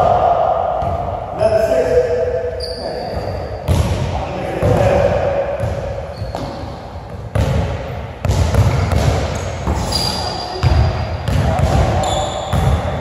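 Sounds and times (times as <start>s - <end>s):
sneaker squeak on court: 2.6s - 3.8s, 6.1s - 6.7s, 9.4s - 11.2s, 12.0s - 12.8s
basketball bouncing on hardwood: 7.3s - 9.8s.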